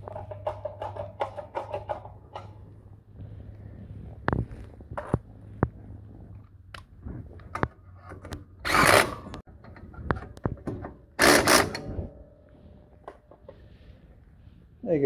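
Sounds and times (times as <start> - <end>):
clicks and knocks of parts: 0.0 - 2.7.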